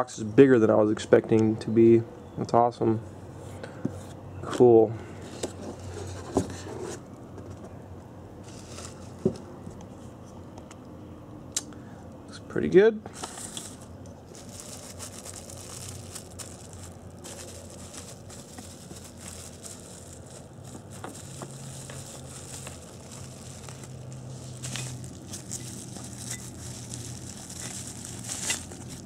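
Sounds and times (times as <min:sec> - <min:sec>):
bubble wrap crinkling: 0:13.3 - 0:29.0
small crackles: 0:14.3 - 0:29.0.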